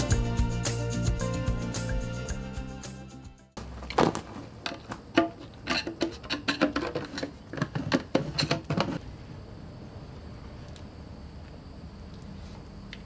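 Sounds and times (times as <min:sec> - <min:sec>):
metal blade prying can lid: 0:04.7 - 0:09.0.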